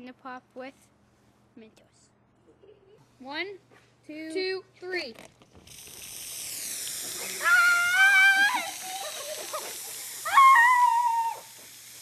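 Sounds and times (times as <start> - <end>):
soda geyser hissing rush: 5.6 - 12.0
children shrieking: 7.4 - 9.2, 10.2 - 11.5.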